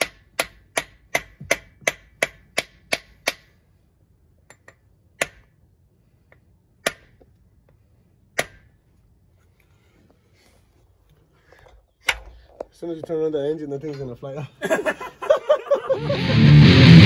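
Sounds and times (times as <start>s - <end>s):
hammer tapping metal: 0.0s - 3.6s.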